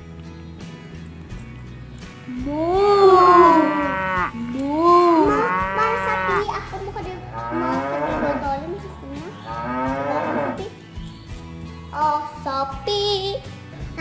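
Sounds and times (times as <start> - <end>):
girl imitating cow moos: 2.3 - 6.4, 7.4 - 8.5.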